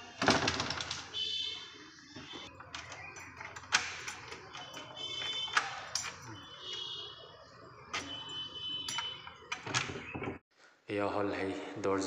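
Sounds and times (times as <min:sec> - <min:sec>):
door lock mechanism clicks: 0:02.5 - 0:06.8.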